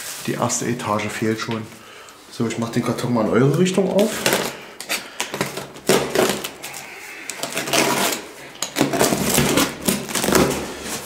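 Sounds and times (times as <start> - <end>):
scraping: 4.0 - 11.0
box cutter slitting packing tape: 4.2 - 11.0
cardboard flaps pulled apart: 5.3 - 11.0.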